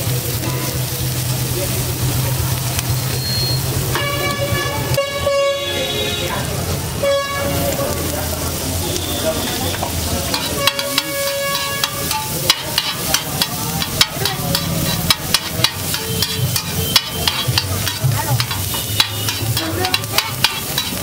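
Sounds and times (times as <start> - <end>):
egg sizzling in butter: 6.4 - 21.0
metal spatula clicking on griddle: 10.3 - 21.0.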